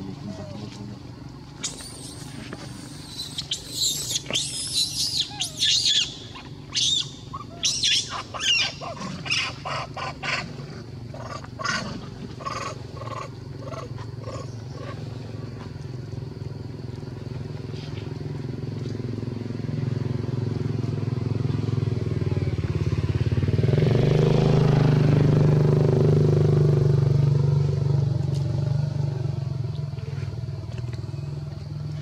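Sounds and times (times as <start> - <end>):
steady low hum: 0.0 - 32.0
monkeys squealing and shrieking: 1.6 - 10.4, 12.4 - 15.0
short low monkey calls: 1.6 - 10.4.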